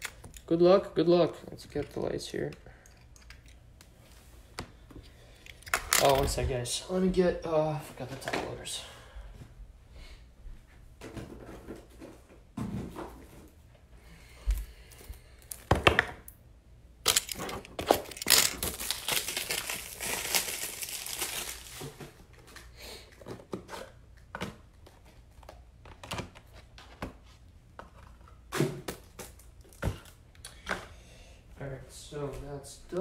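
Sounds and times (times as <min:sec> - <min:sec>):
plastic packaging crinkling: 0:17.1 - 0:22.4.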